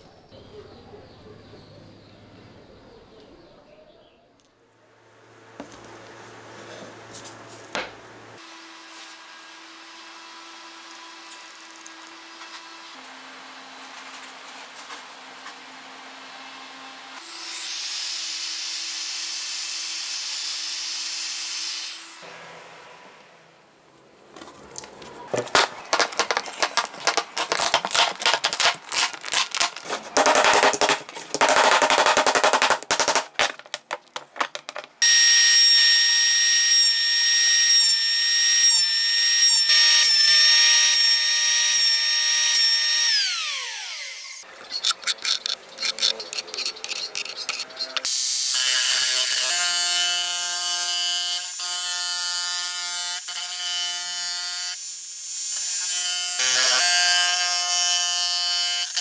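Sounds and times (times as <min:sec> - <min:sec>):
packing tape tearing: 0:25.3 - 0:35.0
jigsaw buzzing: 0:25.4 - 0:59.0.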